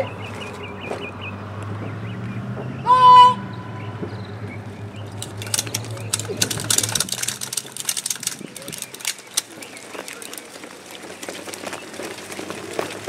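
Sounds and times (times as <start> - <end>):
clatter of boots and rifles: 5.0 - 13.0.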